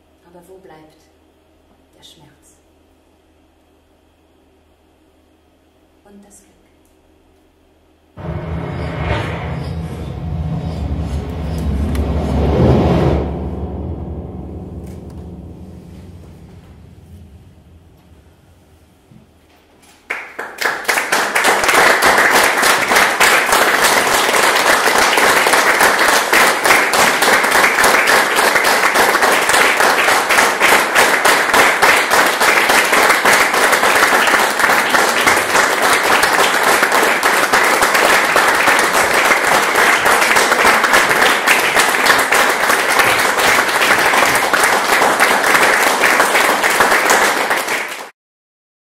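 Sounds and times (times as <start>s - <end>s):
audience applauding: 20.1s - 48.2s.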